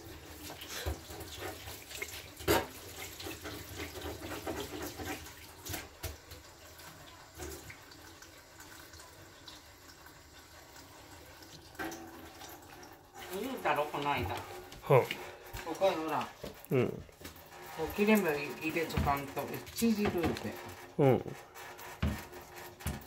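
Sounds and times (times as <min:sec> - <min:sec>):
kitchen tap running into sink: 0:00.0 - 0:23.0.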